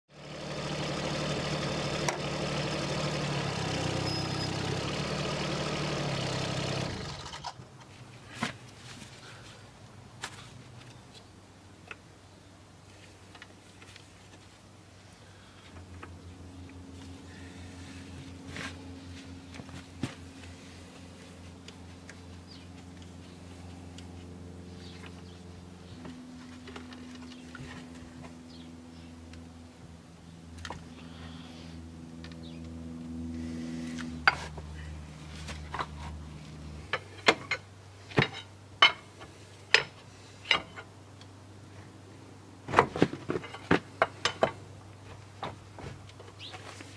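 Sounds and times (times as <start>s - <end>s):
excavator diesel engine running: 0.2s - 7.4s
low engine-like hum: 0.2s - 7.9s, 14.5s - 42.7s.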